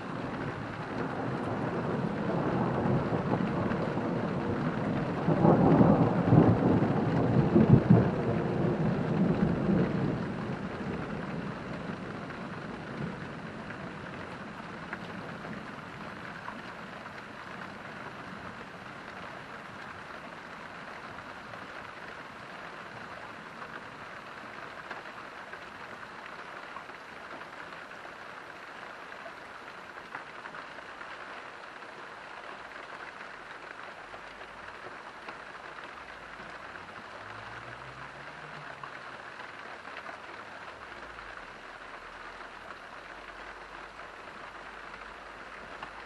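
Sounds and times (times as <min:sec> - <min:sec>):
steady rain: 0:00.0 - 0:46.0
thunder rumbling and crackling: 0:00.1 - 0:16.3.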